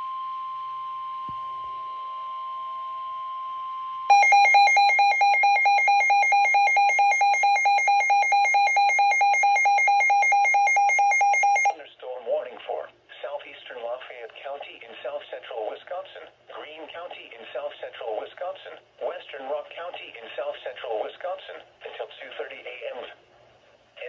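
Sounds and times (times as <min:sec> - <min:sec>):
rapid pulsing alarm beeps: 0:04.1 - 0:11.7
steady alert tone: 0:04.1 - 0:11.7.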